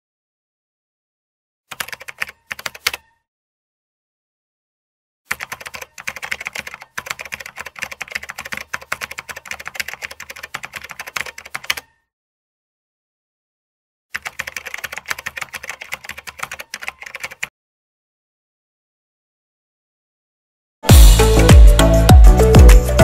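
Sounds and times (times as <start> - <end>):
computer keyboard typing: 1.7 - 3.1, 5.3 - 11.9, 14.1 - 17.5.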